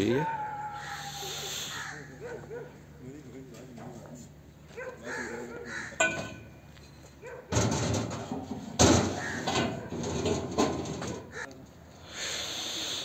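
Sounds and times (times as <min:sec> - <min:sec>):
metallic clank with ring: 0:06.0 - 0:07.1.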